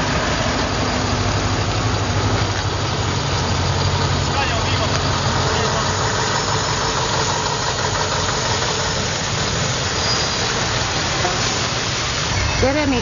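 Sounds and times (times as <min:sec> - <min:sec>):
truck diesel engine passing: 0:00.0 - 0:13.0
tyre hiss on wet road: 0:00.0 - 0:13.0.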